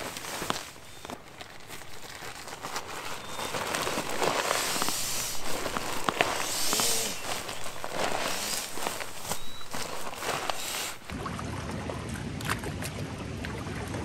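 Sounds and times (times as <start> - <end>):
nylon crinkling and rustling: 0.0 - 11.1.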